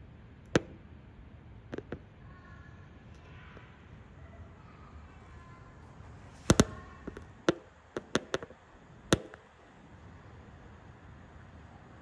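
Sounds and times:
sharp knocks: 0:00.6 - 0:00.8, 0:09.1 - 0:09.4.

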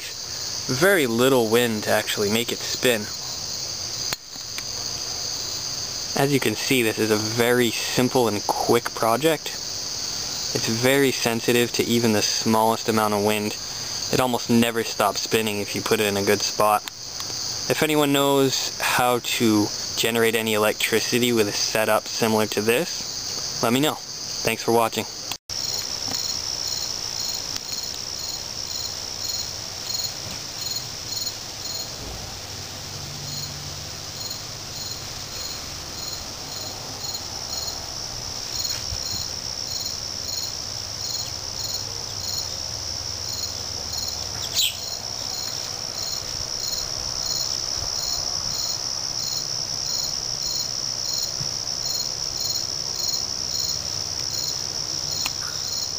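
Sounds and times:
crickets trilling: 0:00.0 - 0:55.9.

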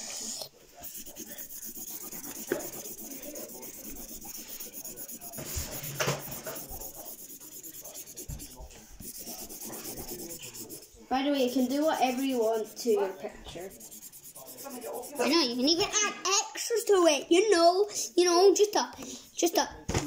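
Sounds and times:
marker scribbling on paper: 0:00.8 - 0:15.8.

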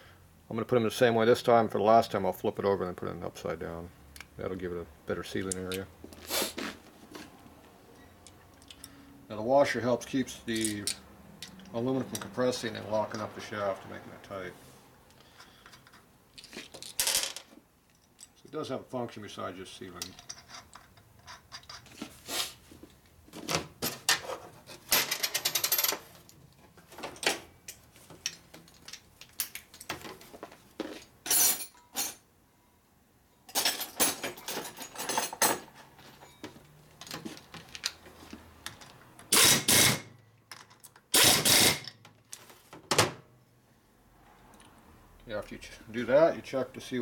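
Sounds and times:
metal tools clinking: 0:10.5 - 0:13.3, 0:20.0 - 0:21.9, 0:31.0 - 0:32.2, 0:33.5 - 0:38.0
pneumatic wrench bursts: 0:39.3 - 0:40.1, 0:41.1 - 0:41.9.

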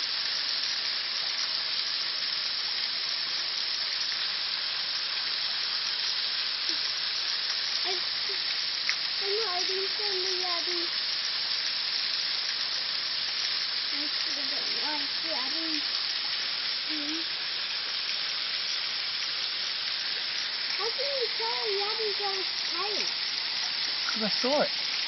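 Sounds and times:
creek water running: 0:00.0 - 0:25.0.

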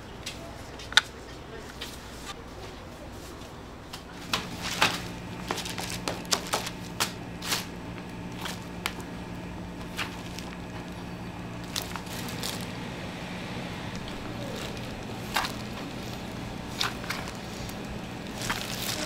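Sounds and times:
steady low hum: 0:00.0 - 0:19.0
plastic film crinkling: 0:04.1 - 0:19.0.

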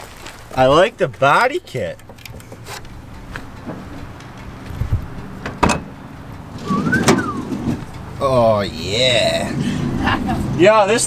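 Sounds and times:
car door thud: 0:05.4 - 0:05.9, 0:06.6 - 0:07.8
door squeak: 0:06.6 - 0:07.8.

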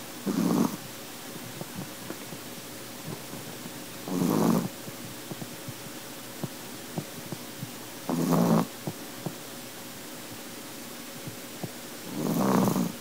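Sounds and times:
dog snoring: 0:00.2 - 0:00.9, 0:03.1 - 0:05.8, 0:08.0 - 0:09.3, 0:12.0 - 0:13.0.

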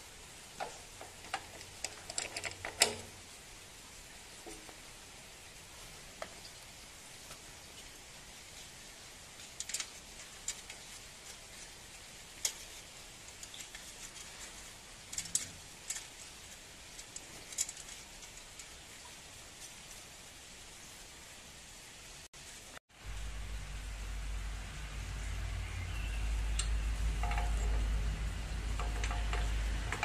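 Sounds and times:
faint steady hiss: 0:00.0 - 0:30.0
small metallic clicks and taps: 0:00.6 - 0:03.2, 0:09.4 - 0:10.9, 0:15.0 - 0:16.3, 0:26.5 - 0:30.0.

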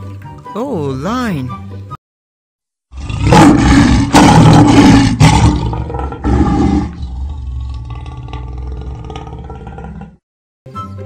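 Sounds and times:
lion roaring: 0:02.9 - 0:10.2.

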